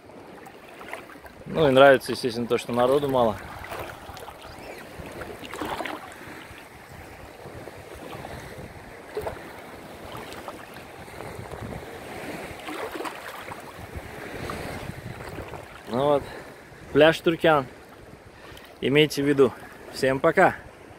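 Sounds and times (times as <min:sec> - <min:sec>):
small waves lapping and sloshing: 0:00.0 - 0:20.9
wind on microphone: 0:02.8 - 0:17.0.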